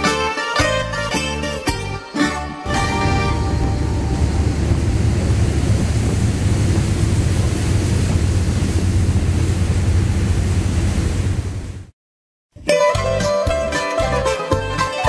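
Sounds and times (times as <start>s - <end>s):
boat engine droning: 2.7s - 11.9s
rush of boat wake: 2.7s - 11.9s
wind buffeting microphone: 2.7s - 11.9s.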